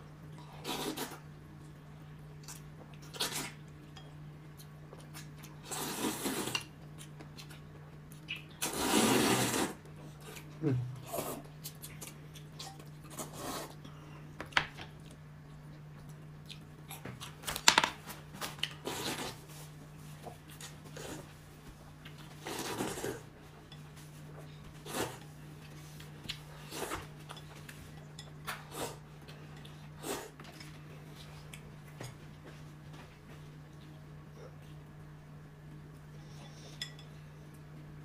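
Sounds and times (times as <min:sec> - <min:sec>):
steady low hum: 0:00.0 - 0:38.0
chopsticks and spoons clinking on bowls: 0:26.8 - 0:29.9, 0:36.3 - 0:37.3.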